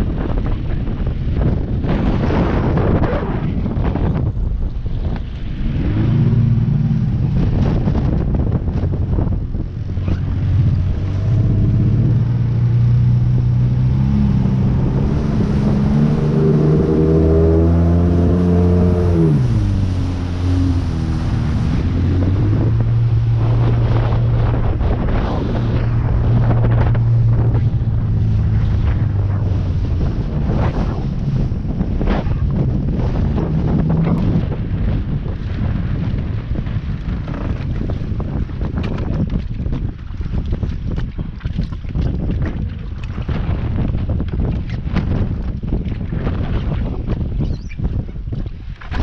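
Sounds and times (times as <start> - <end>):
wind buffeting microphone: 0.0 - 49.0
engine running: 5.2 - 35.6.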